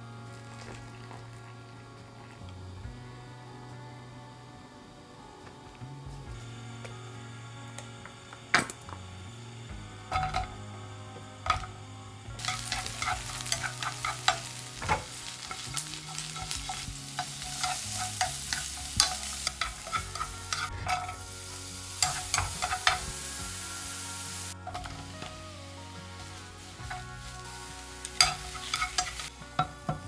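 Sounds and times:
mushrooms sizzling in a pan: 0:09.7 - 0:30.0
utensil scraping a pan: 0:12.4 - 0:23.5, 0:26.2 - 0:30.0.

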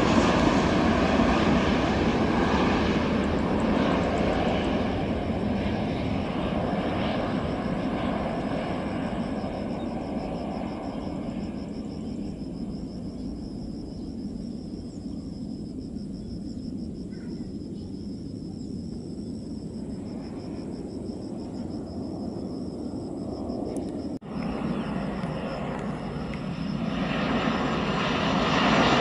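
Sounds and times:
distant jet engines rumbling: 0:00.0 - 0:29.0
insects chirring: 0:00.0 - 0:29.0.

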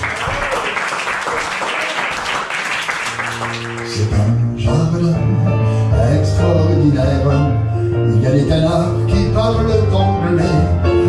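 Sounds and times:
audience applause: 0:00.0 - 0:04.1
upright piano: 0:03.0 - 0:11.0.

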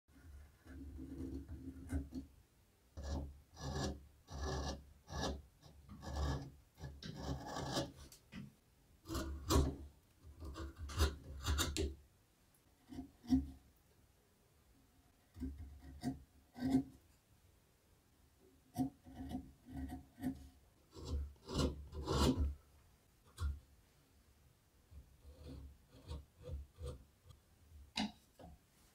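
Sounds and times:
gouge scraping through wood: 0:00.2 - 0:02.3, 0:03.0 - 0:08.2, 0:09.0 - 0:11.9, 0:15.1 - 0:16.9, 0:18.8 - 0:22.6, 0:25.2 - 0:27.1.

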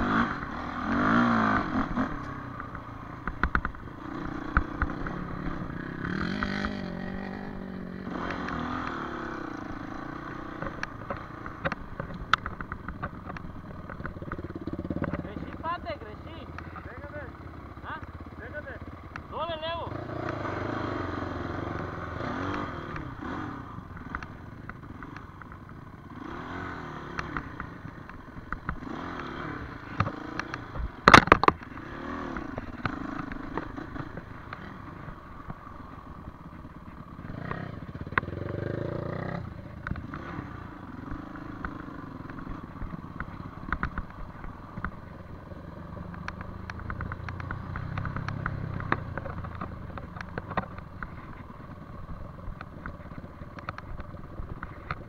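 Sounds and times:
dirt bike engine revving: 0:00.0 - 0:25.3, 0:25.9 - 0:55.0
sharp clattering knocks: 0:09.6 - 0:15.8, 0:27.2 - 0:45.3.

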